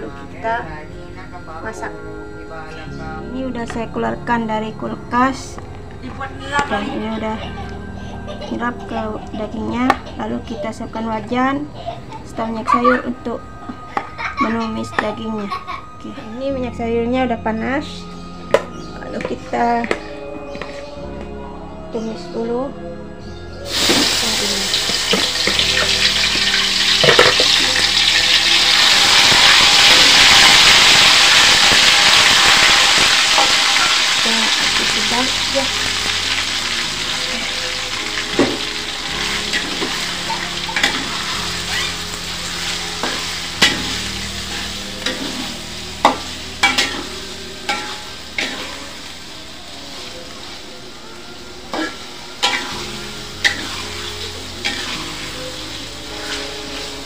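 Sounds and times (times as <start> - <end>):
meat sizzling in hot oil: 23.7 - 50.7, 51.7 - 57.0
metal spoon scraping a wok: 51.8 - 55.3.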